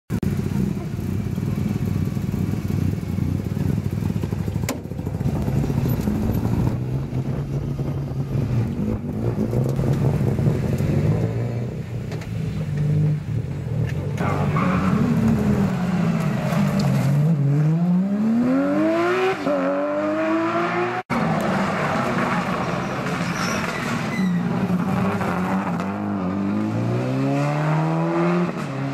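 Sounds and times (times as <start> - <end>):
rally car engines idling: 0.2 - 9.1.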